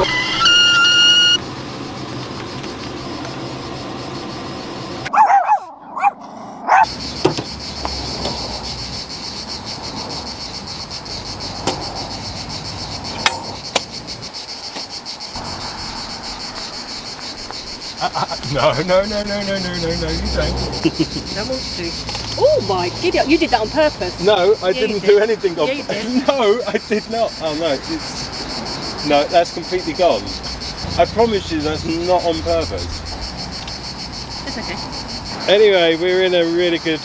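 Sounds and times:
kettle whistling: 0:00.0 - 0:05.1
insects chirring: 0:00.0 - 0:37.0
dog yapping: 0:05.1 - 0:06.9.

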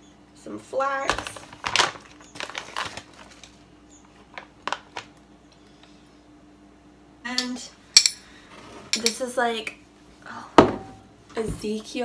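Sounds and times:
plastic pouch rustling: 0:01.2 - 0:05.2
metal spoon clicking on a bowl: 0:07.4 - 0:08.2.

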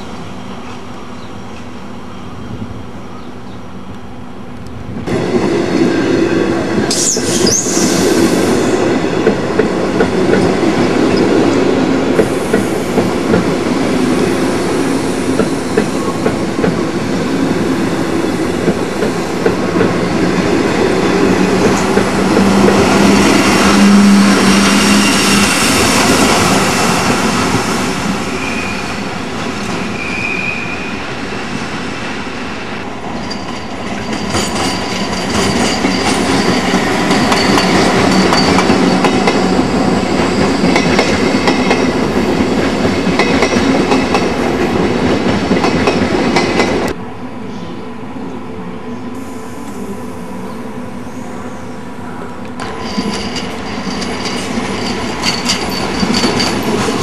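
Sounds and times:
train wheels clattering over track: 0:05.1 - 0:28.7, 0:33.1 - 0:47.0, 0:52.5 - 0:57.0
high wheel squeal: 0:06.9 - 0:08.2, 0:28.3 - 0:29.1, 0:29.9 - 0:31.0.

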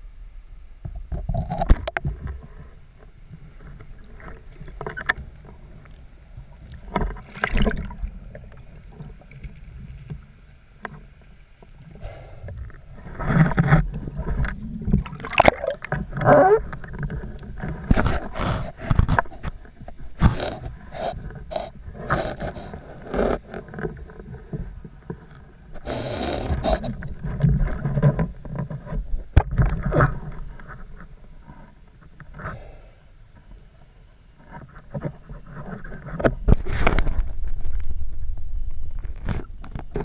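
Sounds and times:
muffled underwater rush: 0:11.8 - 0:19.4.

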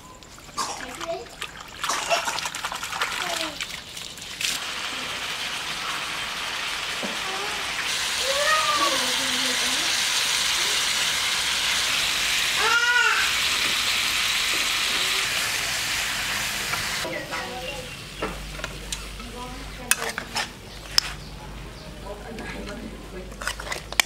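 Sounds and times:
chicken sizzling in a wok: 0:04.5 - 0:19.7.

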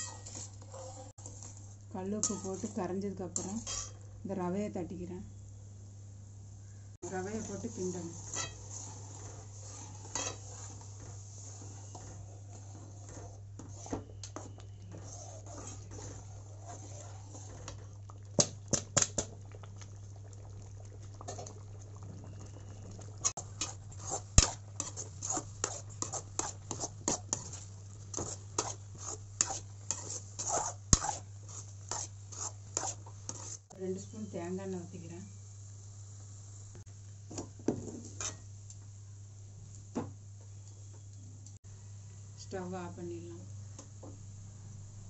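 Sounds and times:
spoon scraping metal pan: 0:00.0 - 0:04.0, 0:07.0 - 0:17.8, 0:23.2 - 0:33.6, 0:38.0 - 0:38.5.

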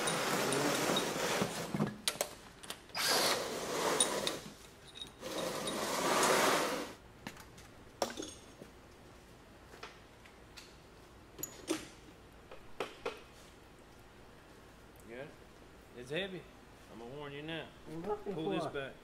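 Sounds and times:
cordless power tool spinning bolts: 0:02.9 - 0:04.4.

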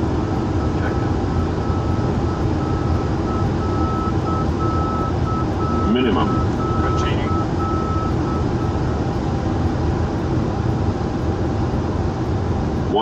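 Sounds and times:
airflow and engine noise: 0:00.0 - 0:13.0
high beeping tone: 0:00.6 - 0:09.0.

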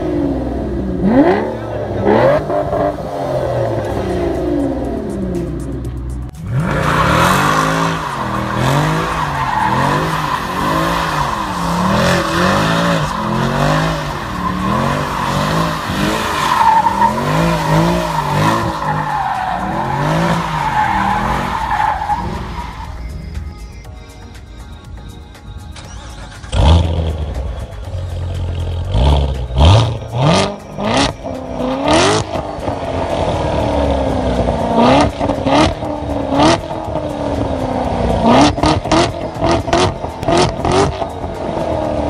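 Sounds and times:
car engine revving: 0:00.0 - 0:23.2, 0:25.8 - 0:42.0
tyres squealing: 0:06.6 - 0:23.2.

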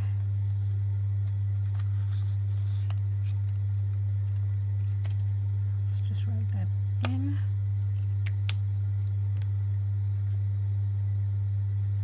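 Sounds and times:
loud low hum: 0:00.0 - 0:12.0
paper banknotes rustling: 0:00.4 - 0:06.0.

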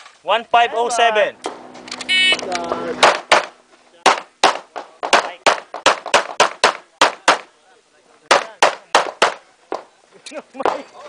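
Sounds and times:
handgun shots: 0:03.0 - 0:07.5.

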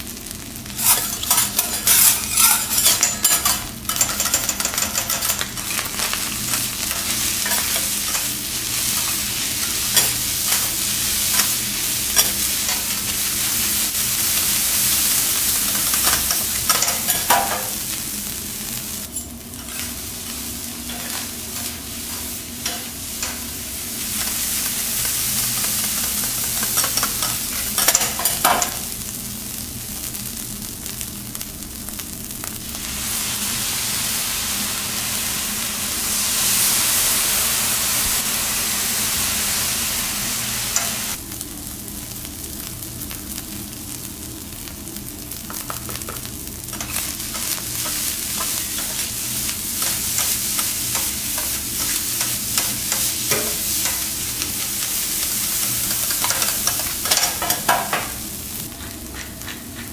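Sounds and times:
rice sizzling on griddle: 0:00.0 - 0:59.9
metal spatulas scraping: 0:00.8 - 0:12.9, 0:20.8 - 0:23.5.

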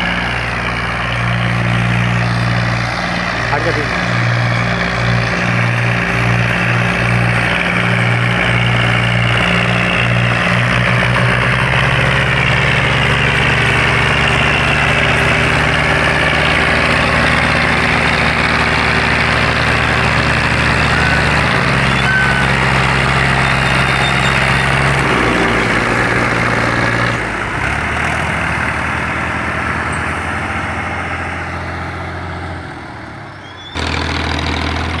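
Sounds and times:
diesel tractor engine under load: 0:00.0 - 0:35.0.

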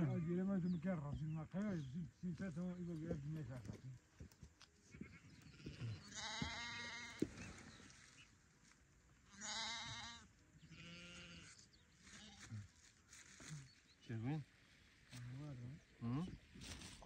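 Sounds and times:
sheep bleating: 0:00.0 - 0:00.3, 0:05.1 - 0:07.3, 0:09.3 - 0:12.6.

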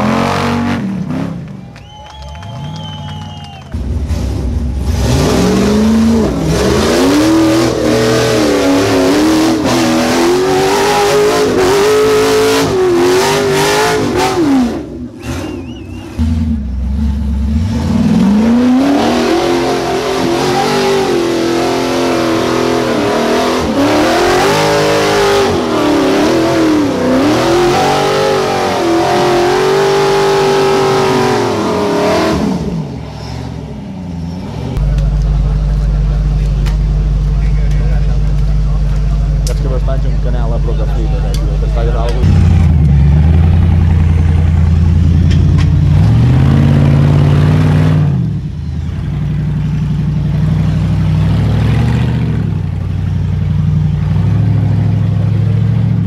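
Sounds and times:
engine revving hard: 0:00.0 - 0:01.5, 0:03.0 - 0:33.6, 0:41.8 - 0:45.1, 0:45.8 - 0:49.1, 0:50.4 - 0:52.8.

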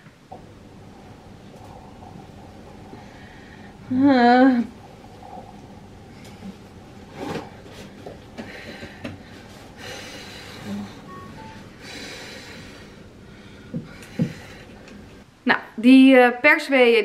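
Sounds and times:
woman breathing out: 0:11.8 - 0:14.8.

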